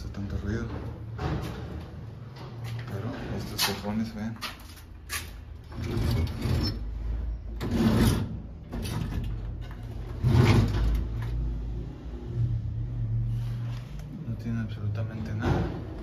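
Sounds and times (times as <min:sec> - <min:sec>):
wooden drawers sliding: 0:07.5 - 0:11.4.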